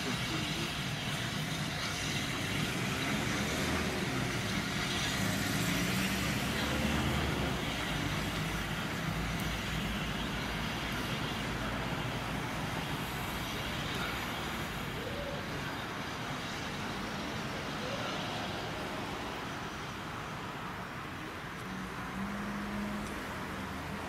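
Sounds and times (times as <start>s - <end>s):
steam locomotive moving over rails: 0.0s - 17.1s
steam hissing: 0.0s - 19.8s.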